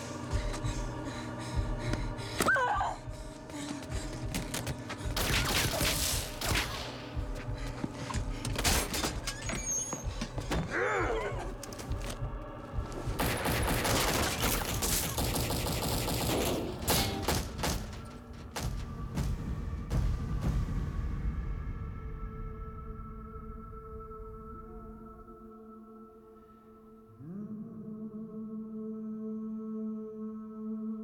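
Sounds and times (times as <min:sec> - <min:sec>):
rapid gunfire: 0:13.2 - 0:17.9.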